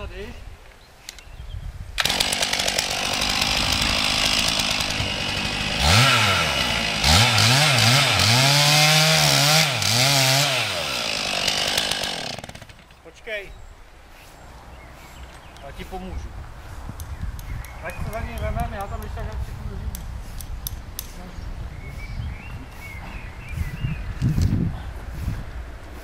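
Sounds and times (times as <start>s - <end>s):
chainsaw cutting into tree trunk: 2.0s - 12.9s.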